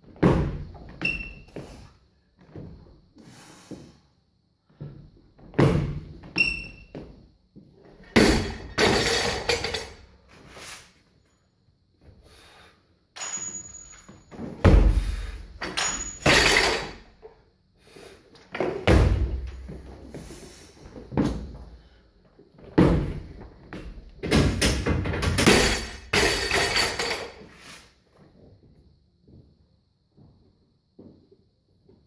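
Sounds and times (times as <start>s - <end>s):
barbell dropped bouncing plates: 8.0s - 10.0s, 15.6s - 17.0s, 24.2s - 27.4s.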